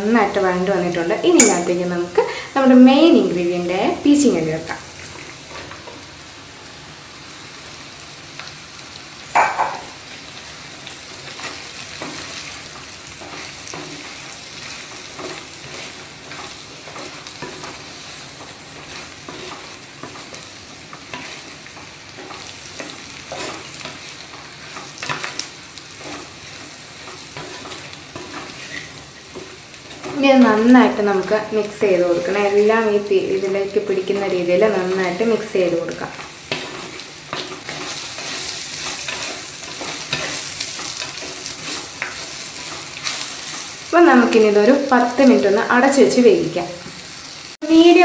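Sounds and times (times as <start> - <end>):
food sizzling in oil: 0.0 - 48.0
spatula scraping a pot: 27.0 - 29.1.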